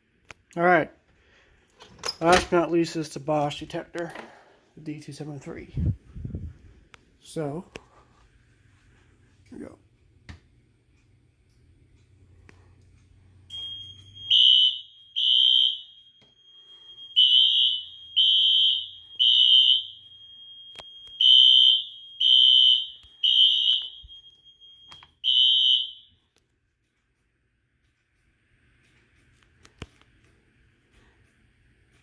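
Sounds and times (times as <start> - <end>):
fire alarm horn blasts: 13.5 - 26.3.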